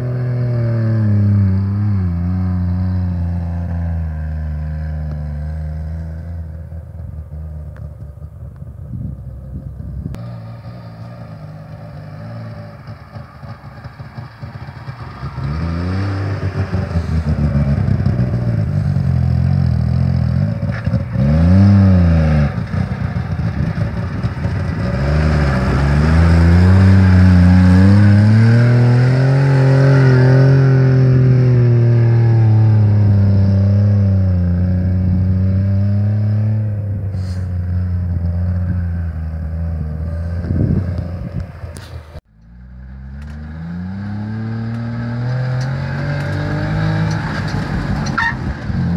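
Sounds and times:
two-stroke engine revving: 12.2s - 48.9s.

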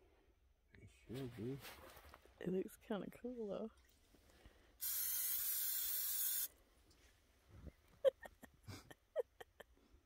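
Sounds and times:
pressurized spray hissing: 4.8s - 6.5s.

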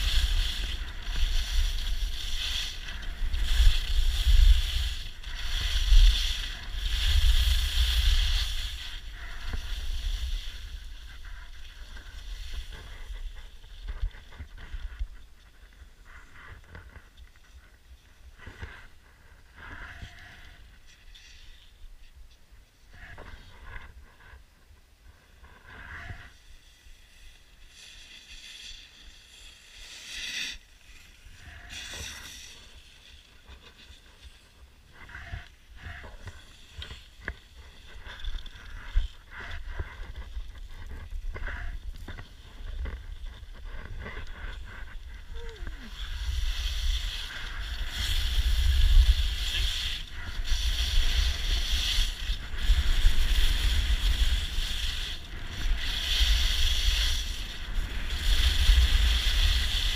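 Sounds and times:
wind buffeting microphone: 0.0s - 15.2s
skis scraping over snow: 0.0s - 22.1s, 25.1s - 59.9s.

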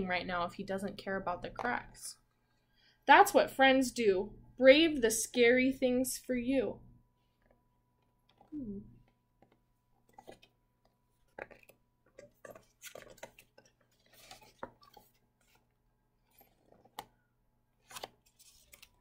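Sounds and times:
paper rustling: 11.2s - 17.2s, 17.8s - 19.0s.

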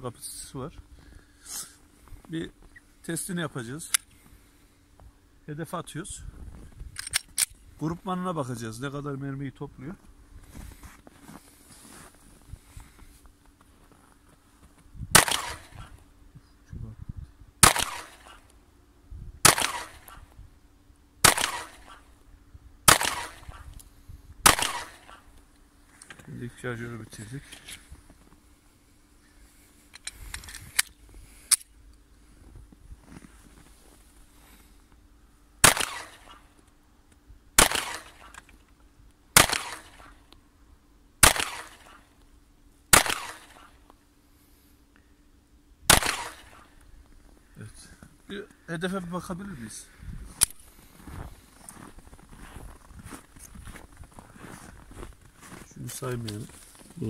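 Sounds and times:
pistol shots with echo: 15.1s - 15.9s, 17.6s - 18.4s, 19.4s - 20.3s, 21.2s - 22.1s, 22.9s - 23.6s, 24.4s - 25.2s, 35.6s - 36.4s, 37.6s - 38.3s, 39.4s - 40.2s, 41.2s - 42.0s, 42.9s - 43.7s, 45.9s - 46.7s.

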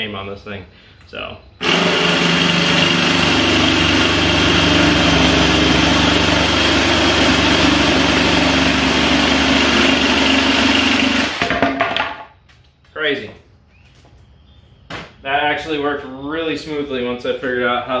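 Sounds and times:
saw blade cutting plywood: 1.6s - 11.4s.

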